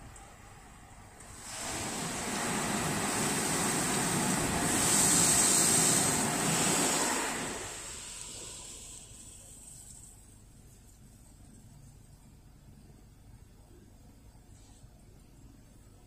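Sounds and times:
car wash water jets hissing: 0.0s - 10.8s.

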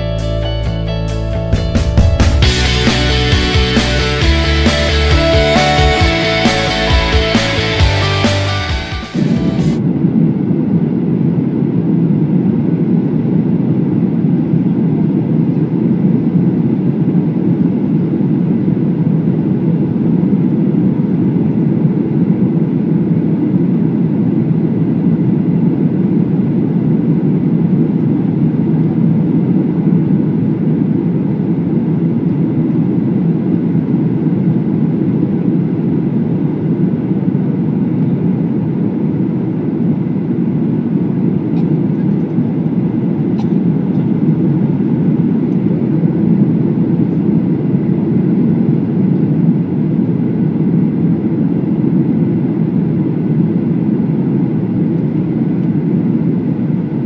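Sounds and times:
aircraft cabin engine roar: 0.9s - 57.0s
air rushing over airframe: 1.4s - 10.0s.

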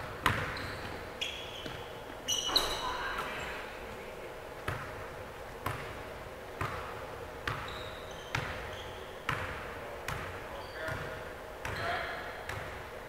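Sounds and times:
basketball dribbled on hard court: 0.2s - 1.0s, 6.6s - 7.7s.

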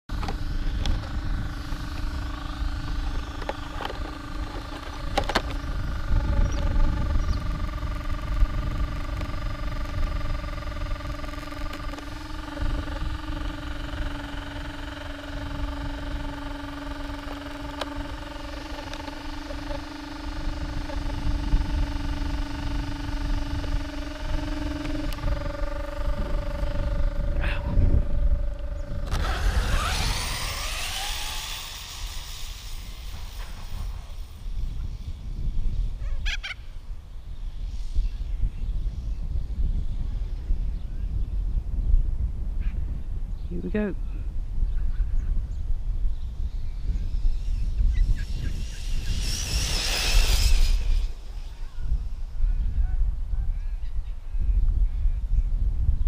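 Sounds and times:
rising whine: 0.1s - 42.1s, 45.5s - 54.2s
steady whine: 0.1s - 42.3s, 45.4s - 55.0s
wind rumbling on microphone: 0.1s - 56.0s.

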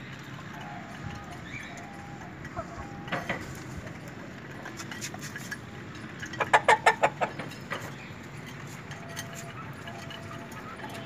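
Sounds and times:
chickens clucking: 0.4s - 5.6s, 6.2s - 7.9s.

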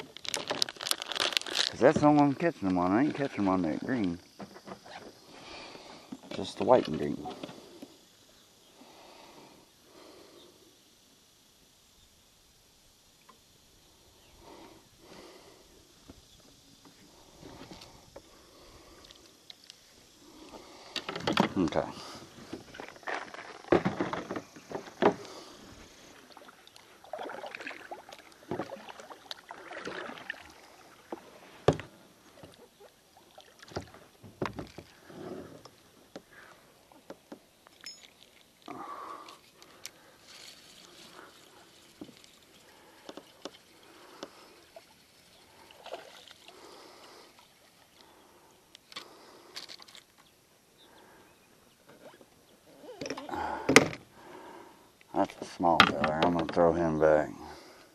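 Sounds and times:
paddle strokes and splashes: 20.5s - 35.2s, 35.8s - 48.4s
paddle knocking against hull: 22.4s - 25.3s.

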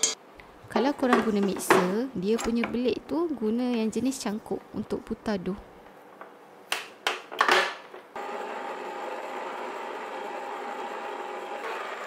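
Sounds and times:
stand mixer motor whining: 8.2s - 12.0s.

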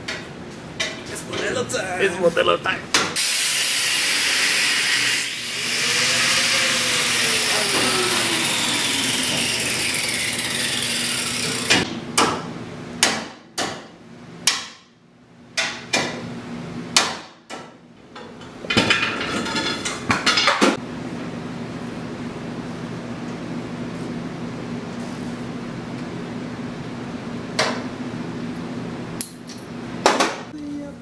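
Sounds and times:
falling whine: 5.2s - 11.8s.

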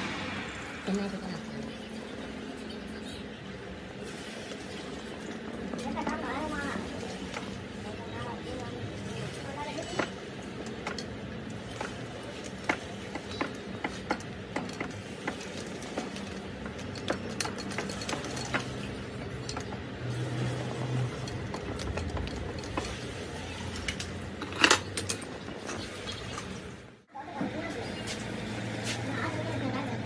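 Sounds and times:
metallic clatter: 9.6s - 26.7s.

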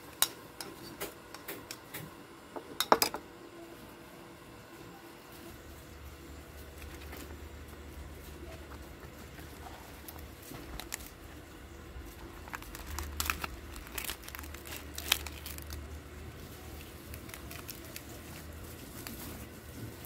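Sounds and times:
leaves crinkling and rustling: 12.0s - 20.0s.

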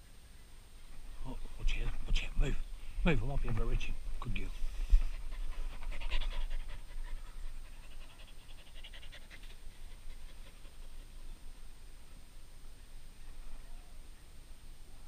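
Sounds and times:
dog panting rapidly: 4.8s - 11.3s.

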